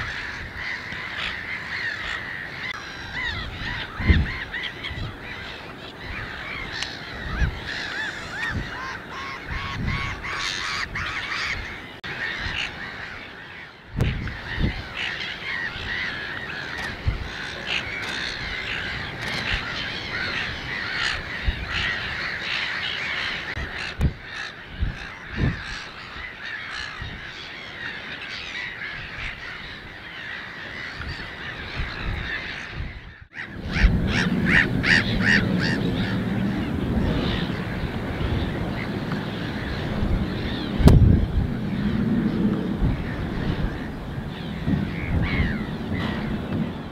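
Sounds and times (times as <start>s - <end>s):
chorus of waterbirds calling: 0.0s - 46.9s
low thumps: 40.8s - 43.2s.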